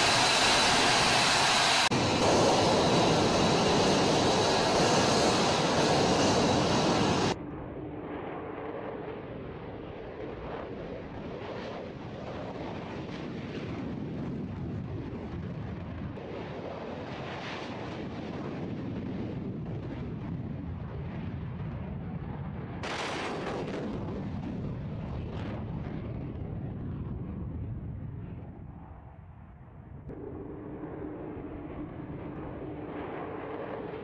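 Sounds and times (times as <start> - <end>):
jet engine roaring: 0.0 - 14.9, 30.1 - 34.0.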